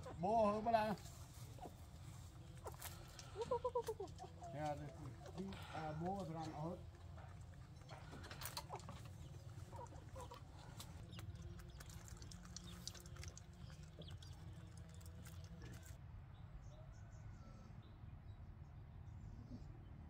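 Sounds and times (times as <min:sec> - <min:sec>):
chickens clucking: 0:00.0 - 0:16.0.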